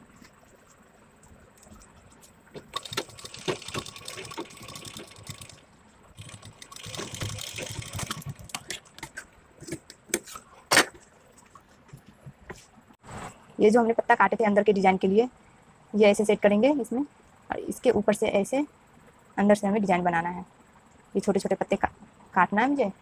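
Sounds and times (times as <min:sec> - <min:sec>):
sewing machine stitching: 0:02.6 - 0:05.6, 0:06.2 - 0:08.9.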